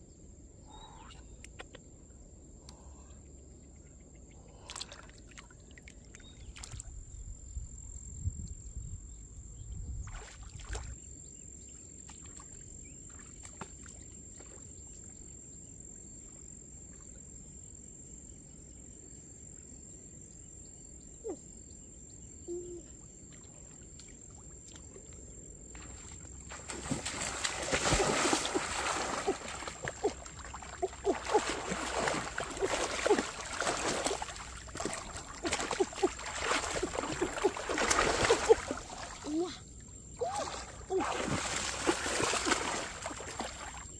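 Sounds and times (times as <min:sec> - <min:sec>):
outdoor ambience: 0:00.0 - 0:43.9
hands splashing in water: 0:25.8 - 0:39.3, 0:40.2 - 0:43.9.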